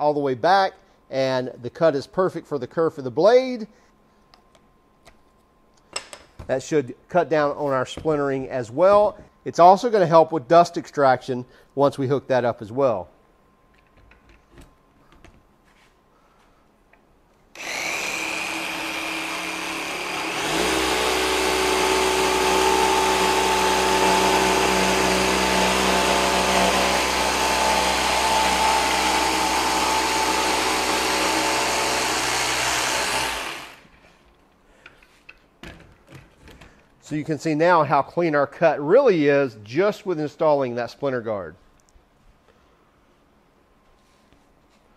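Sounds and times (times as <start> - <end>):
jigsaw sawing plywood: 17.6 - 33.9.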